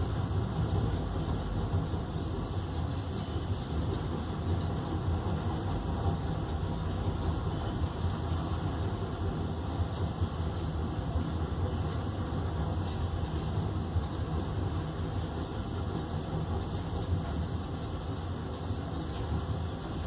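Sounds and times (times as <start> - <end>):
heavy diesel engines rumbling: 0.0 - 20.0.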